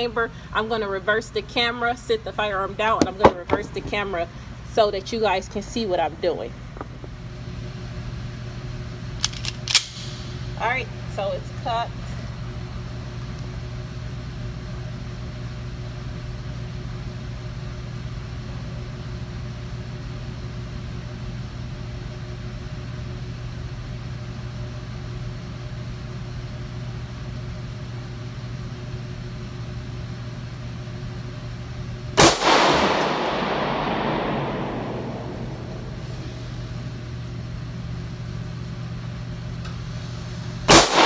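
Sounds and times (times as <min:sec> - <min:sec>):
steady low hum: 0:00.0 - 0:41.0
pistol shot echoing: 0:32.2 - 0:36.6, 0:40.7 - 0:41.0.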